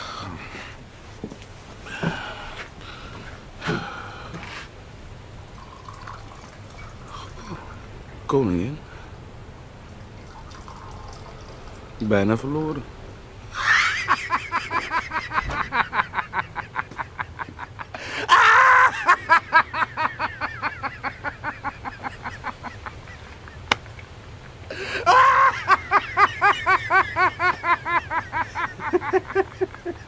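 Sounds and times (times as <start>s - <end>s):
hearty laughter: 13.5s - 23.8s, 24.7s - 30.0s.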